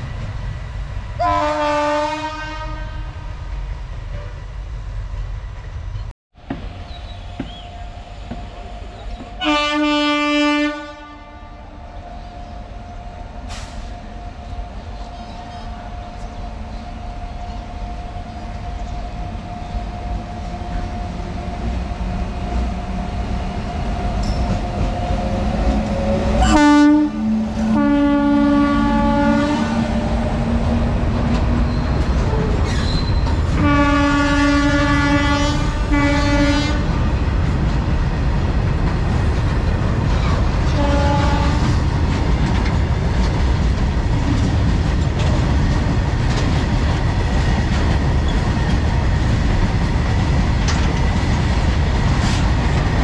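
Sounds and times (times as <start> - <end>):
freight train rumble and wheel clatter: 0.0 - 53.0
train horn blasts: 1.2 - 3.3, 9.4 - 12.0, 25.9 - 30.2, 33.5 - 36.9, 40.7 - 41.8.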